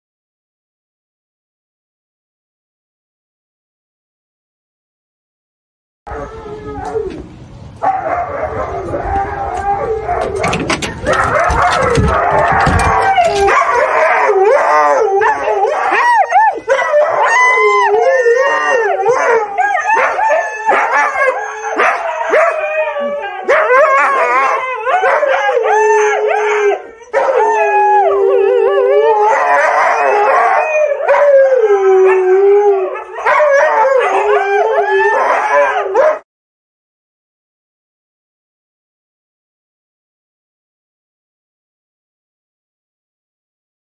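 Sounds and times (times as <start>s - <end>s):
huskies howling: 6.1s - 36.2s.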